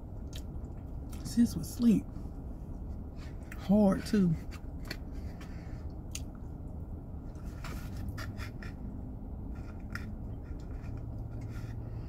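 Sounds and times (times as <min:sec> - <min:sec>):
car cabin hum: 0:00.0 - 0:08.1
soft chewing: 0:00.1 - 0:01.3, 0:02.6 - 0:06.5, 0:09.5 - 0:12.0.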